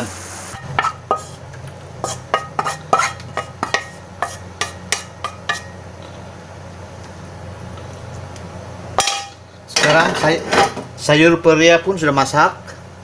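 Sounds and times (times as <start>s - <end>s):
spatula scraping a wok: 0.5s - 1.4s, 2.0s - 5.8s.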